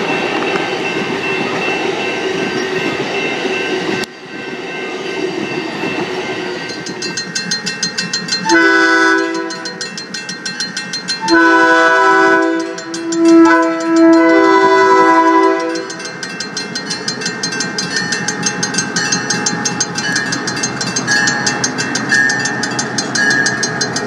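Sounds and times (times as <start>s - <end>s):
crossing bell ringing rapidly: 0.0s - 24.0s
passing train rolling noise: 0.0s - 24.0s
locomotive air horn blasts: 8.5s - 9.6s, 11.2s - 15.9s.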